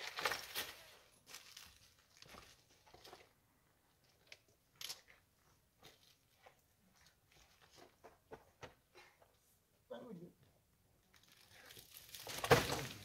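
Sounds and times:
dry branches scraping and cracking: 0.0s - 3.3s, 11.1s - 13.0s
stones crunching underfoot: 0.0s - 3.4s, 11.2s - 13.0s.

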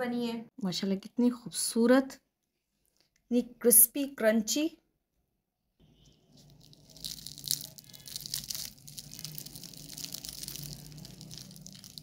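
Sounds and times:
fried pastry crackling: 6.0s - 12.0s.

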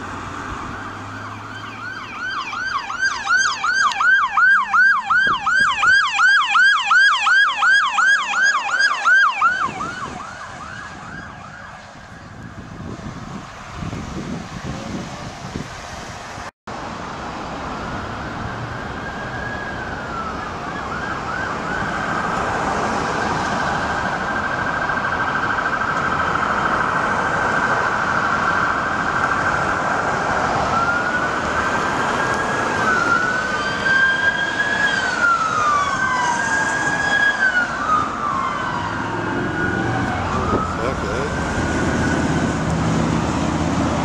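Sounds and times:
police siren: 0.0s - 15.0s, 17.3s - 44.0s
street traffic: 0.0s - 44.0s.

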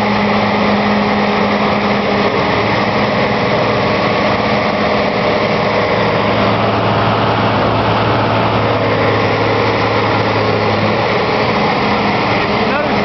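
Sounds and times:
diesel engine idling: 0.0s - 13.0s.

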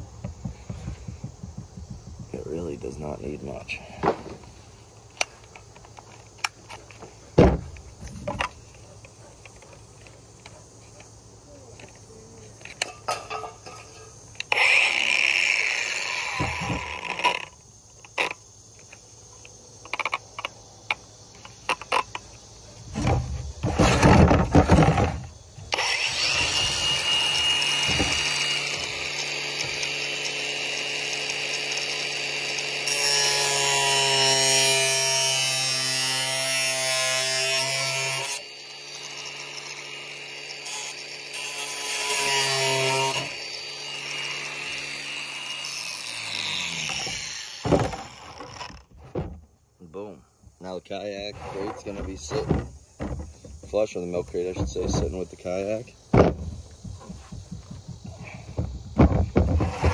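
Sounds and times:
angle grinder grinding plastic: 14.4s - 18.4s, 59.0s - 59.9s.

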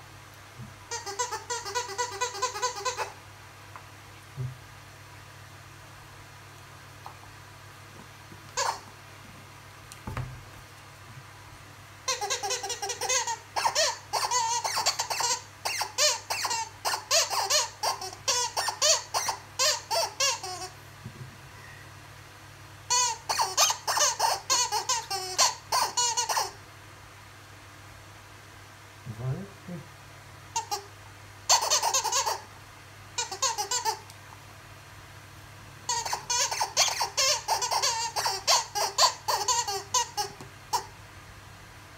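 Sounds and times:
rubber squeaky toy squeaking: 0.9s - 3.2s, 8.6s - 8.9s, 12.1s - 20.7s, 22.9s - 26.6s, 30.6s - 30.9s, 31.5s - 32.5s, 33.2s - 34.0s, 35.9s - 40.9s.

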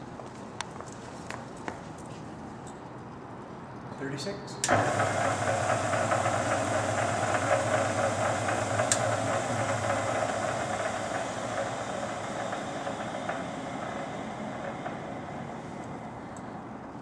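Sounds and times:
lathe running: 4.7s - 17.0s.

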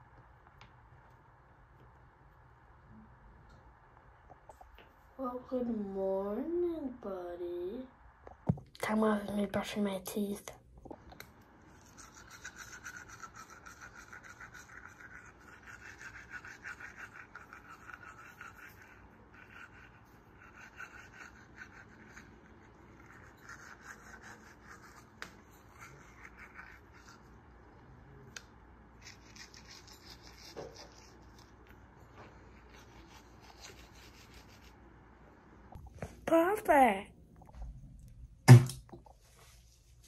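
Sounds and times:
toothbrush scrubbing teeth: 11.7s - 27.6s, 29.0s - 34.8s.

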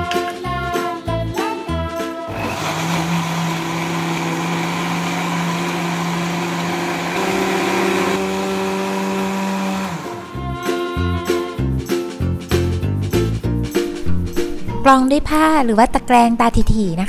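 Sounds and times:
electric blender running: 2.3s - 10.5s.

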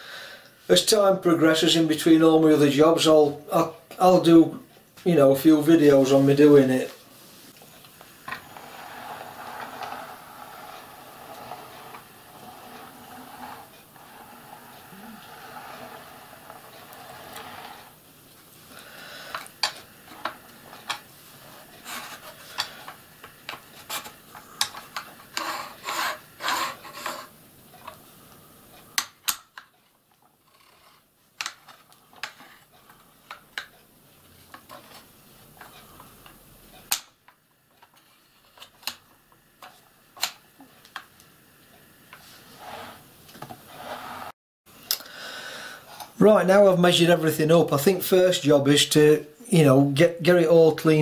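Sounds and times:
metal scraping: 8.2s - 18.0s, 19.2s - 27.3s.

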